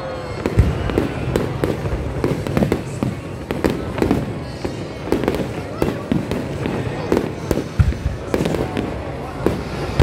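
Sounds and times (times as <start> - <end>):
fireworks bursting and crackling: 0.0 - 10.0.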